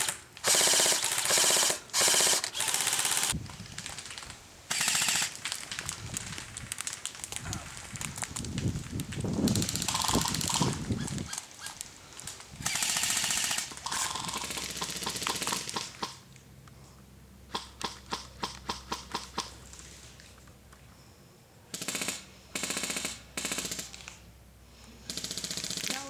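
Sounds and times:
airsoft rifle full-auto bursts: 0.0s - 3.4s, 4.7s - 5.4s, 9.5s - 10.8s, 12.6s - 16.2s, 21.7s - 24.0s, 25.1s - 26.0s.

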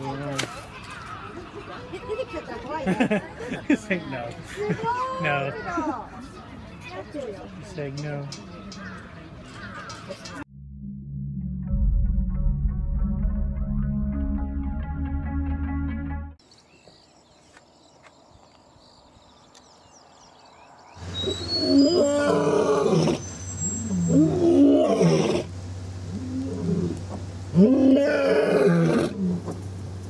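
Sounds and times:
lion roaring: 24.1s - 25.5s, 26.1s - 29.5s.

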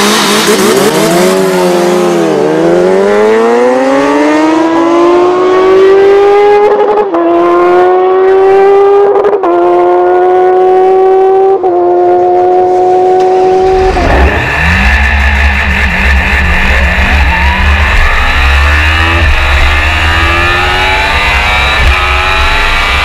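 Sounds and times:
motorcycle accelerating hard: 0.0s - 23.0s.

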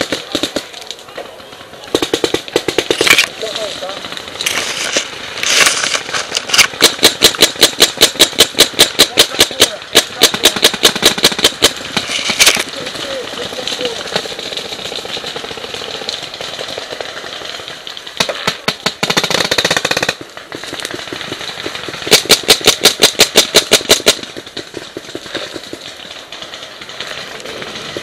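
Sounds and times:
paintball markers firing: 0.0s - 12.7s, 13.4s - 28.0s.

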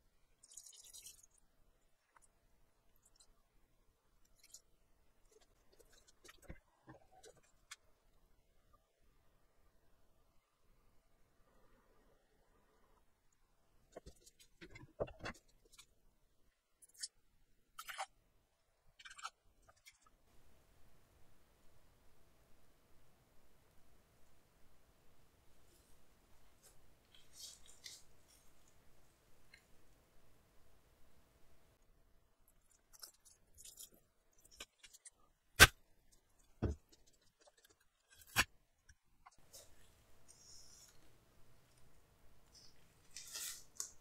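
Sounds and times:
handling noises on a tabletop: 42.6s - 44.0s.

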